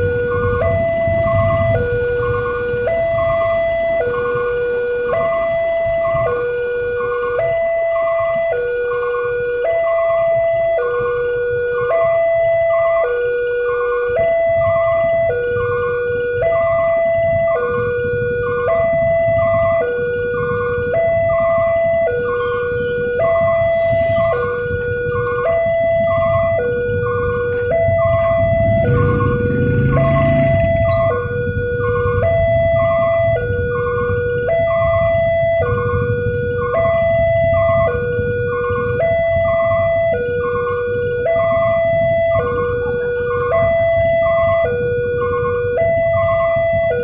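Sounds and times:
traffic rumble: 0.0s - 47.0s
two-tone level crossing alarm: 0.0s - 47.0s
level crossing two-tone alarm: 20.8s - 42.4s
motorcycle engines idling: 28.1s - 31.3s.

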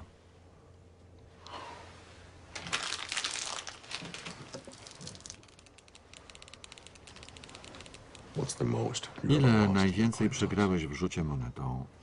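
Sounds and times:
plastic wrapper crinkling: 2.5s - 8.3s.

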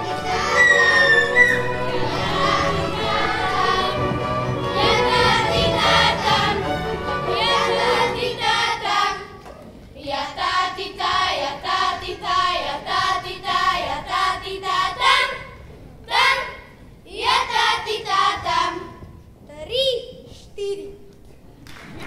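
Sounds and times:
band accompaniment: 0.0s - 8.7s
boys singing a folk song: 0.0s - 9.4s, 10.0s - 19.2s.

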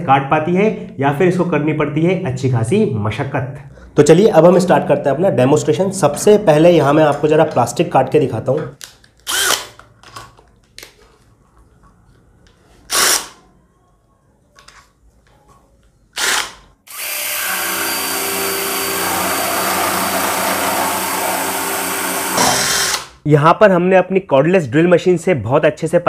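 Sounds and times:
drill driving reciprocating saw: 9.3s - 9.7s, 12.9s - 13.4s, 16.2s - 23.2s.

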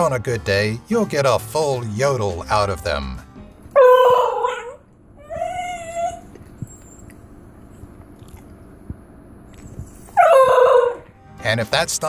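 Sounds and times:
dog yodelling: 3.7s - 6.7s, 10.1s - 11.1s.

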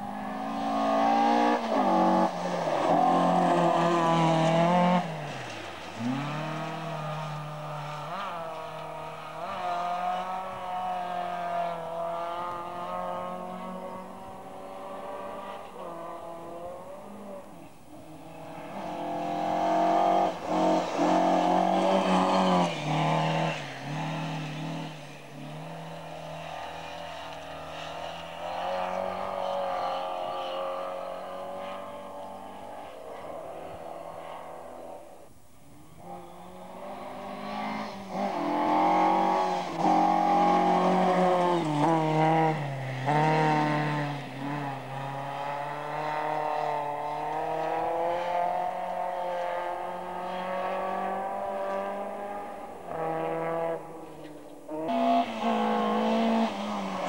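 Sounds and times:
rally car engines revving: 0.0s - 57.0s.

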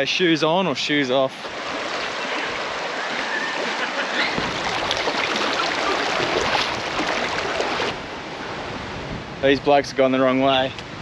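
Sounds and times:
creek water running: 0.7s - 8.6s
feet wading through water: 1.4s - 8.0s.

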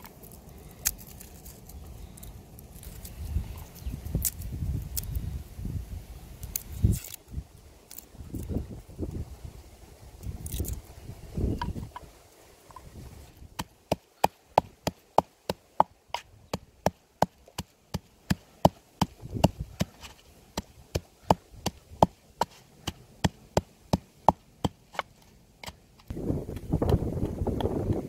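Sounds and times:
pestle pounding in wooden mortar: 16.5s - 20.0s, 25.7s - 28.0s.

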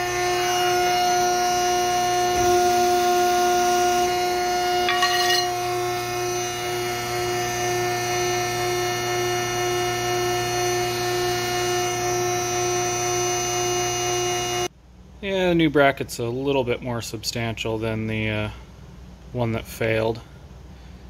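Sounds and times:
machine motor humming: 0.0s - 14.7s
short metallic clink: 4.9s - 5.6s.

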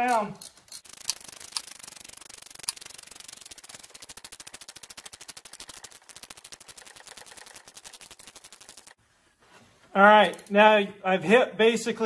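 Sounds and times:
ratchet wrench clicking: 0.1s - 9.0s, 10.2s - 10.5s.

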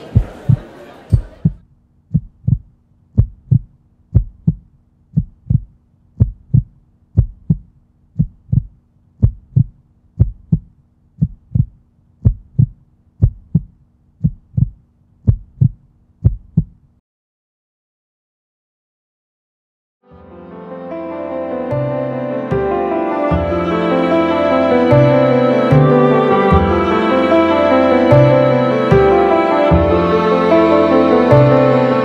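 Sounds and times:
heartbeat thumps: 0.1s - 16.9s.

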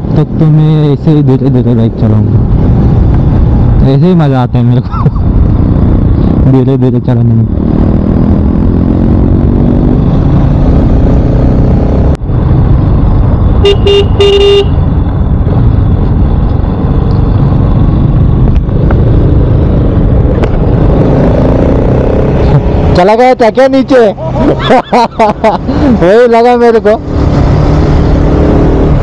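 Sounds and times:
wind and road noise: 0.0s - 29.0s
motorcycle engine: 5.2s - 29.0s
vehicle horn toots: 13.6s - 14.8s.

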